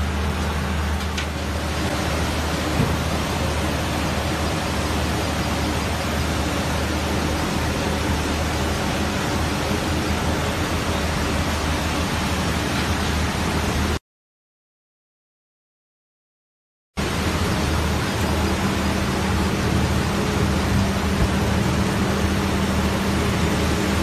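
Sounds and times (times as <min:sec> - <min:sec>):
low machinery hum: 0:00.0 - 0:14.0, 0:17.0 - 0:24.0
slurry gushing from pipes: 0:00.0 - 0:14.0.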